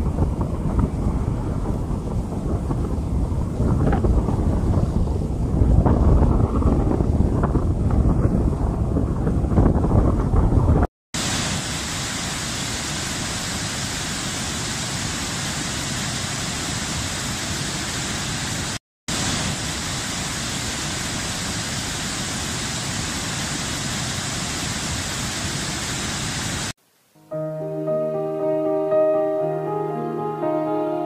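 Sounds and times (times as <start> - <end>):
wind buffeting microphone: 0.0 - 10.9
water rushing over rocks: 11.2 - 26.8.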